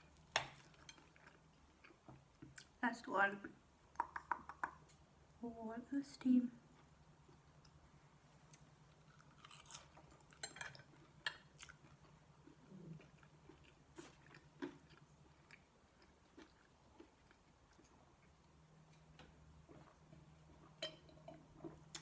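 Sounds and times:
faint low hum: 0.0 - 22.0
person chewing: 0.5 - 2.7, 8.4 - 18.6, 21.6 - 22.0.

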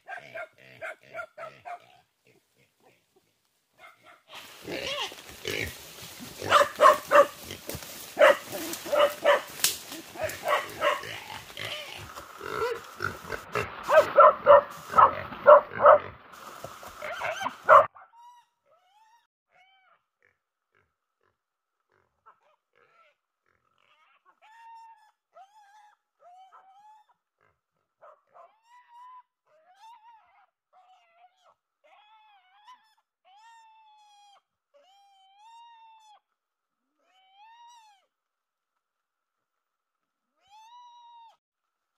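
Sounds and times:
pig squealing and grunting: 0.0 - 3.0, 4.3 - 16.2, 17.0 - 27.6, 28.3 - 36.2.

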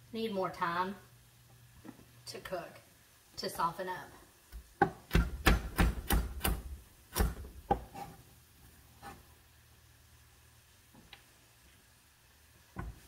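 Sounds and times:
knife chopping carrot: 4.8 - 8.2.

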